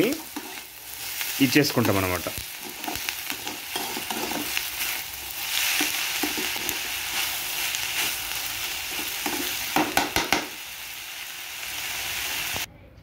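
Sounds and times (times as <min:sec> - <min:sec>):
metal spatula scraping and clinking: 0:00.0 - 0:00.8, 0:01.8 - 0:08.2, 0:08.9 - 0:09.6
vegetables sizzling in hot oil: 0:00.0 - 0:12.7.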